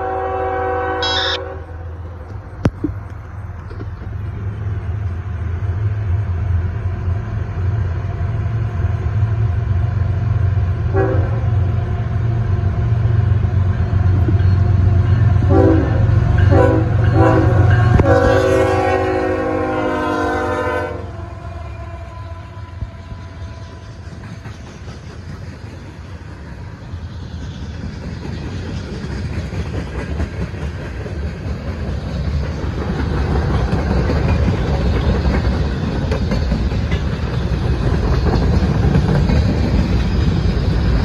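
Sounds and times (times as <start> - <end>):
multi-note air horn blasts: 0.0 - 1.8, 15.5 - 23.0
diesel locomotive engine rumble: 0.0 - 41.0.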